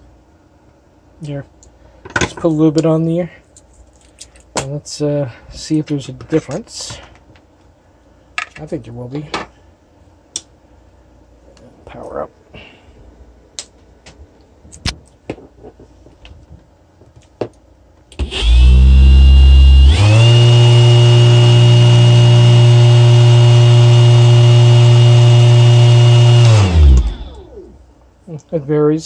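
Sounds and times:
electric motor hum and whine: 0:18.2 - 0:27.9.

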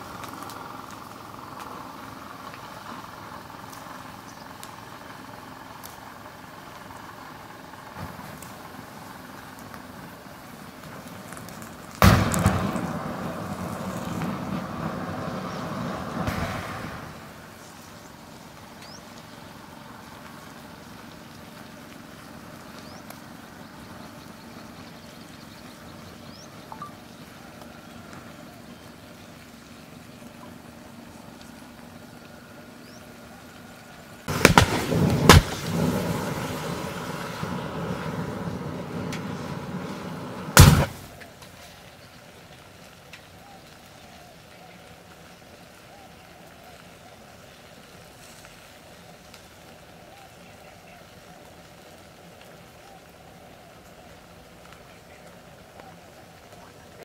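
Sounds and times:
fire burning: 0:00.0 - 0:57.0
lighters bursting with sharp bangs: 0:11.7 - 0:17.8, 0:34.3 - 0:41.2
loud rushing noise: 0:12.0 - 0:17.6.

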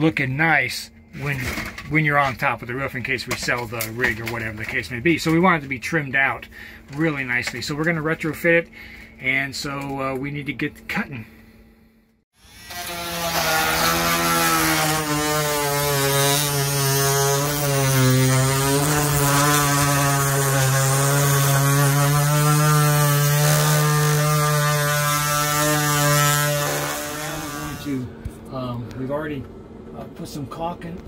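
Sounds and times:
oscillating multi-tool cutting plastic: 0:12.4 - 0:27.9.

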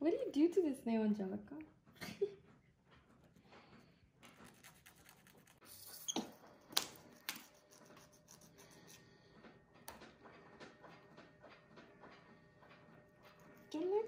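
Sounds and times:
manicure tools scratching nails: 0:04.2 - 0:06.2, 0:06.8 - 0:09.1.

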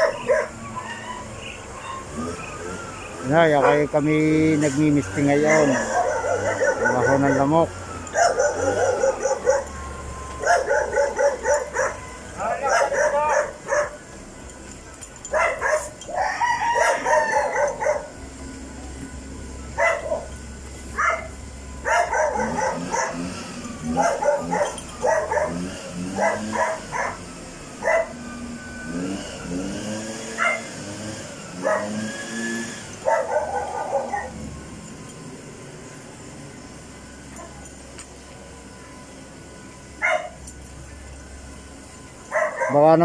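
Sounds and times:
dogs barking: 0:00.0 - 0:14.2, 0:15.1 - 0:18.4, 0:19.7 - 0:28.3, 0:29.8 - 0:34.5, 0:40.0 - 0:40.5, 0:42.2 - 0:43.0
low wavering dog calls: 0:00.0 - 0:14.2, 0:15.2 - 0:19.0, 0:19.6 - 0:34.6, 0:42.2 - 0:42.9.

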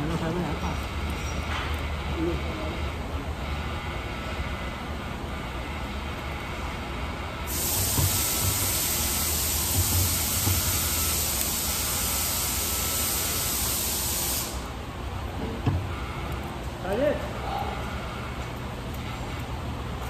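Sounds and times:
loud even hiss: 0:07.5 - 0:14.8.

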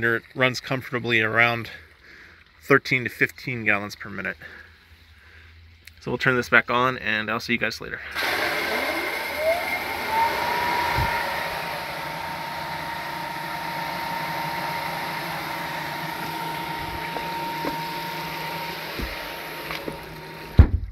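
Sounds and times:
turbine whine: 0:08.0 - 0:20.9
water jets hissing: 0:08.1 - 0:20.5.

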